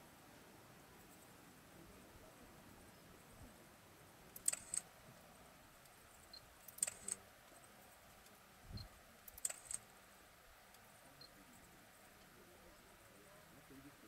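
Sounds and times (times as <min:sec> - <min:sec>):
bursts of sharp clicks: 0:04.4 - 0:04.9, 0:05.8 - 0:07.2, 0:09.2 - 0:09.9.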